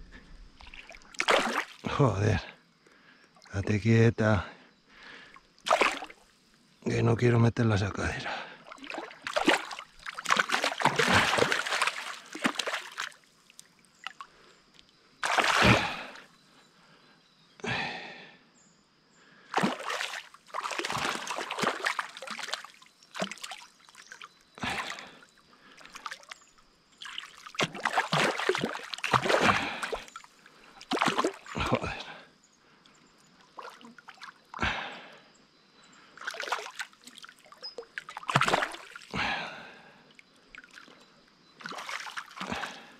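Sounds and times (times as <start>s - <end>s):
fish thrashing and splashing: 0.6s - 1.8s, 5.6s - 6.2s, 8.7s - 13.2s, 15.2s - 16.2s, 19.6s - 25.1s, 27.0s - 31.7s, 36.2s - 39.1s, 41.6s - 42.8s.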